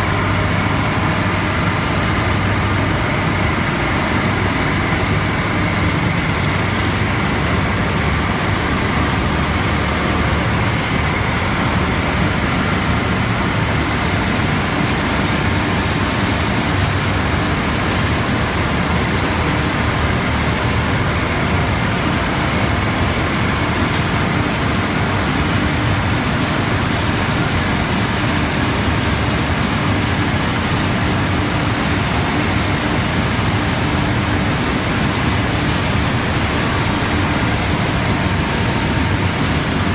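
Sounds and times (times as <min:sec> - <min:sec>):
loud steady machine noise: 0:00.0 - 0:39.9.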